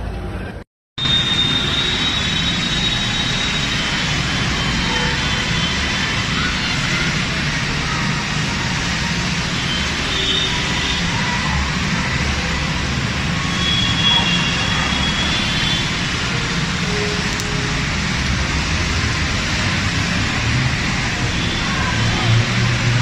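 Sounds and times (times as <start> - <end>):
rushing water on flooded street: 1.0 - 23.0
faint high voices: 5.5 - 15.5.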